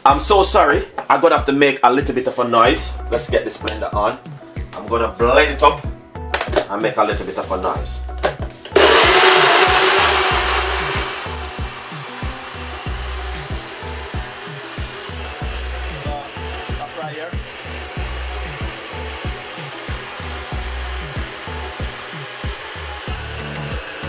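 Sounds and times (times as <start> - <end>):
background music with steady beat: 0.0 - 24.0
countertop blender running: 8.8 - 24.0.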